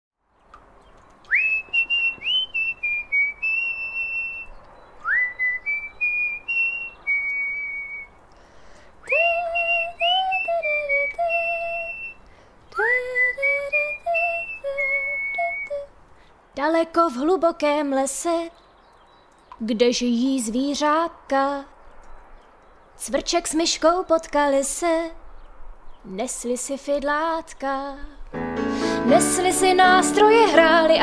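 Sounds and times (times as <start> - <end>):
whistled melody: 1.2 - 8.1, 9.1 - 12.2, 12.8 - 15.8.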